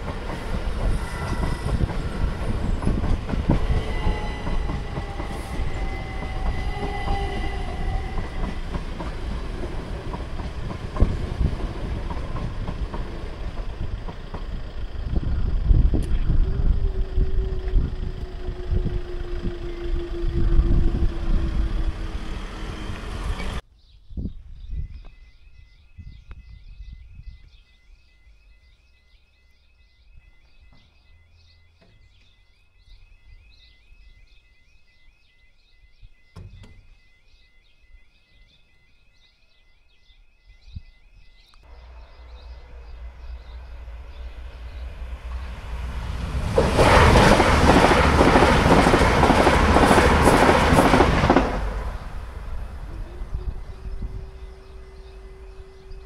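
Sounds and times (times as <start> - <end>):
train passing with rumble: 0.0 - 23.6, 41.6 - 56.0.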